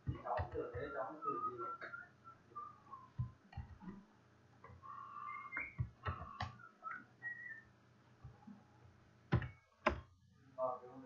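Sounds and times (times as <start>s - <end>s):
person whistling softly: 1.2s - 3.3s, 6.8s - 7.7s.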